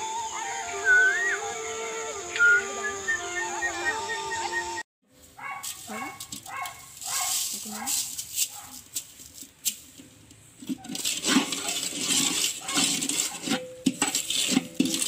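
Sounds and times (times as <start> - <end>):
sugar scraping in metal wok: 5.6 - 15.0.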